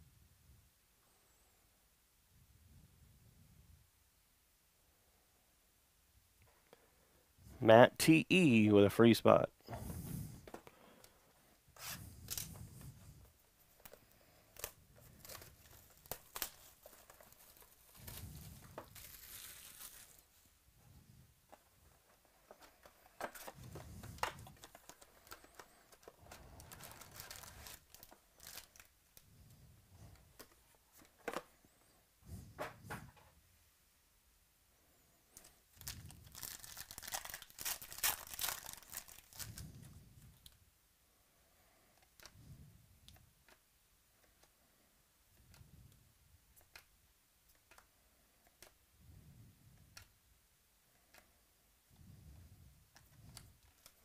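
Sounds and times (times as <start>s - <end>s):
foil wrappers crinkling: 13.8s - 20.4s, 22.5s - 28.9s, 35.4s - 39.7s.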